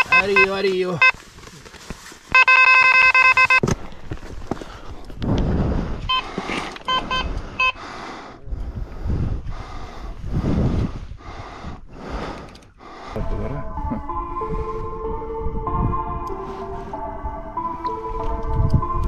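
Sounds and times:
electronic bite alarm beeping: 0.0 - 1.1, 2.4 - 3.6, 6.9 - 7.8
rustling: 0.0 - 4.8.

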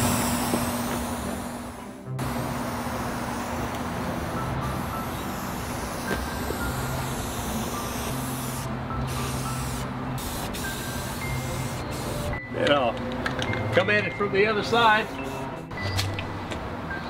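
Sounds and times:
spray-paint can hissing: 0.0 - 12.4.

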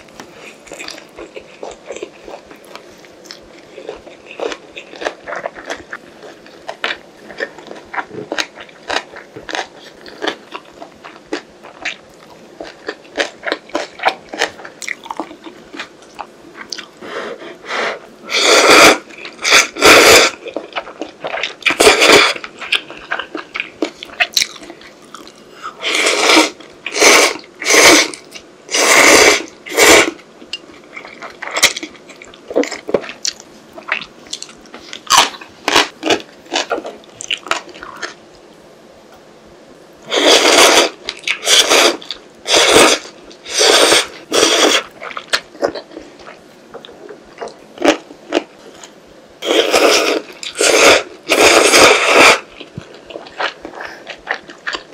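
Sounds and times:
slurping noodles: 17.1 - 20.5, 25.8 - 30.2, 40.1 - 44.9, 49.4 - 52.5
close chewing with wet clicks: 52.6 - 54.9.

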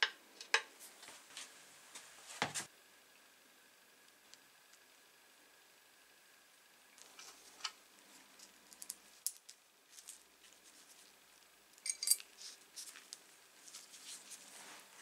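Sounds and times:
small metal clicks and clinks: 11.8 - 12.3.

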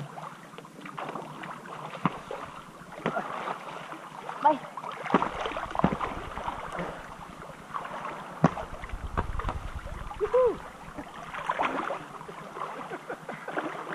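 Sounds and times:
pool water splashing: 0.0 - 13.9
person calling out: 10.2 - 10.6.

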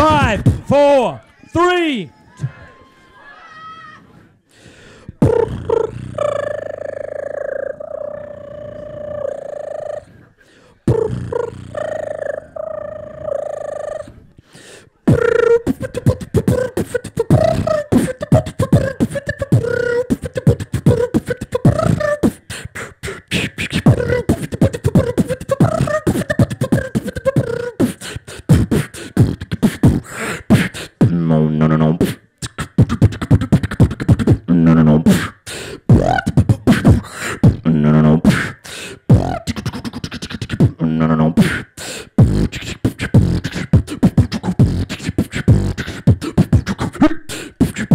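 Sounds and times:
person beatboxing: 0.0 - 1.2, 4.8 - 47.9
hummed melody: 15.1 - 22.4.

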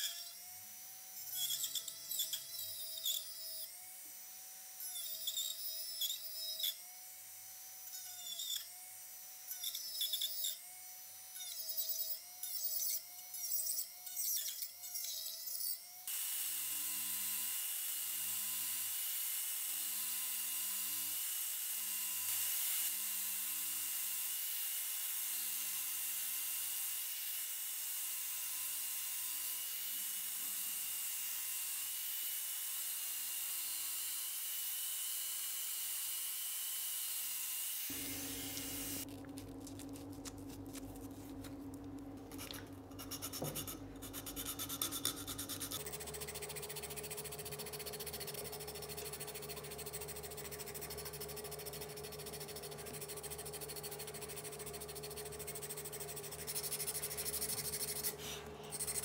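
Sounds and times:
low hum with scraping: 37.9 - 59.0.

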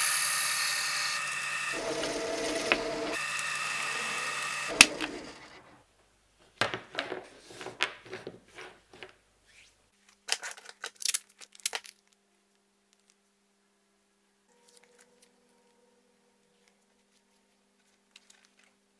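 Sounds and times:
drill press whining: 0.0 - 5.8.

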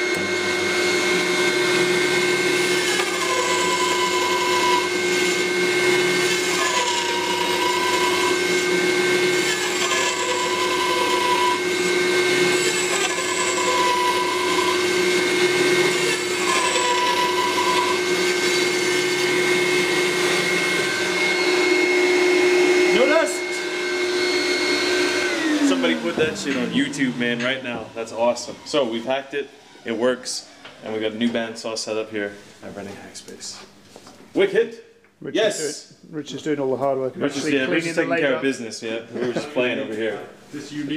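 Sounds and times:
bandsaw cutting wood: 0.0 - 30.4
bandsaw whining: 0.0 - 30.6
vacuum cleaner running: 0.0 - 31.0.

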